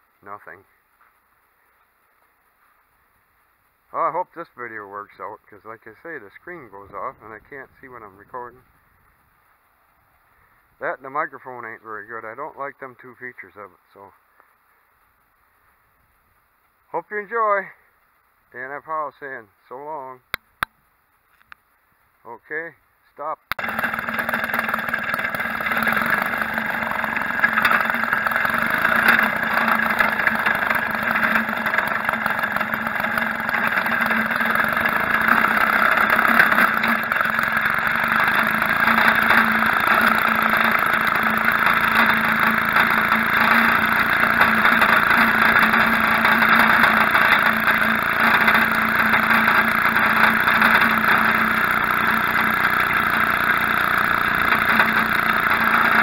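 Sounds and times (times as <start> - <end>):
two-stroke engine running: 23.5 - 56.0.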